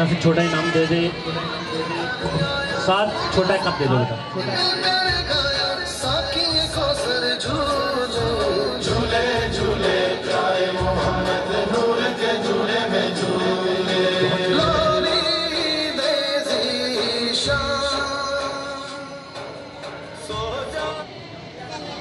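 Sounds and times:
voices chanting long notes: 7.4s - 17.9s.

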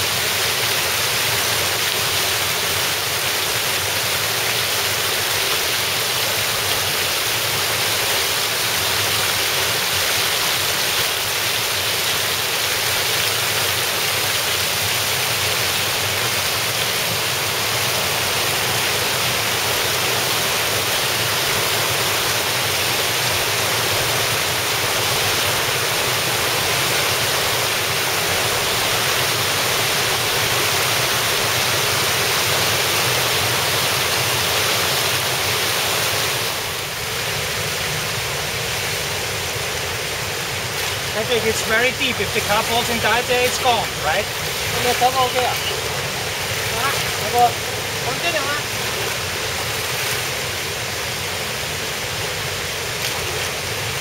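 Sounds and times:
small waterfall splashing: 0.0s - 54.0s.

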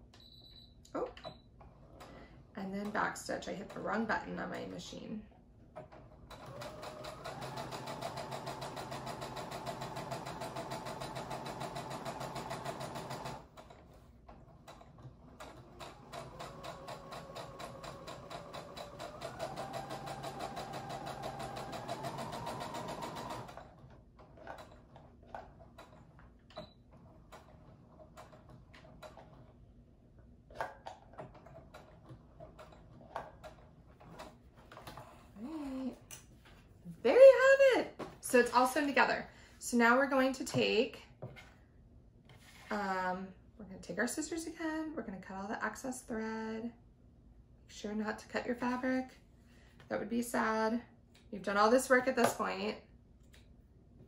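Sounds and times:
electric sewing machine stitching: 6.3s - 13.7s, 14.7s - 24.6s.

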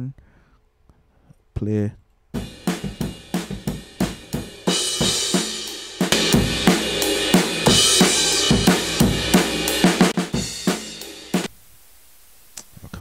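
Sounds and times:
drum kit loop: 2.4s - 11.5s.

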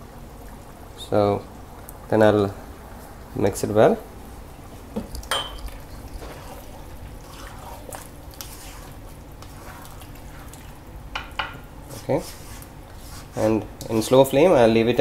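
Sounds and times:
spatula stirring thick curry: 5.7s - 10.9s, 11.8s - 14.2s.

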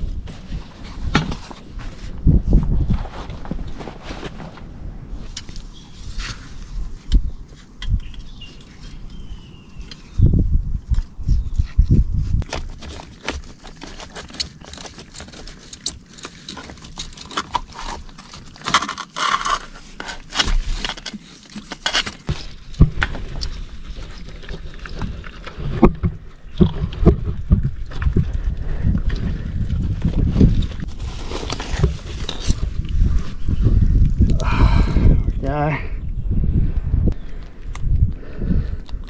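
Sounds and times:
rustling among dry roots and sticks: 0.0s - 35.7s
wood crackling and clicking: 12.4s - 33.0s.

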